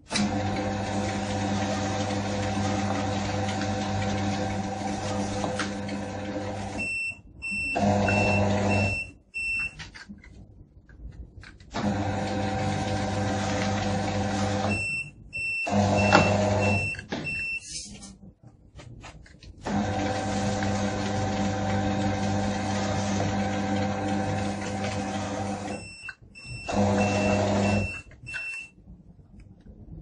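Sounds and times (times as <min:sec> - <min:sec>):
high-pitched alarm beeps: 0:14.7 - 0:17.8, 0:25.7 - 0:28.7.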